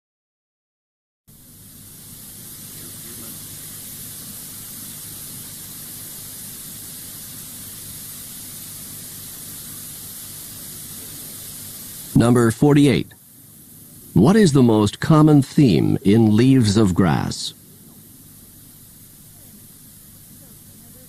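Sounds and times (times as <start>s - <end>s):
recording hiss: 1.3s - 21.0s
faint low hum: 10.5s - 21.0s.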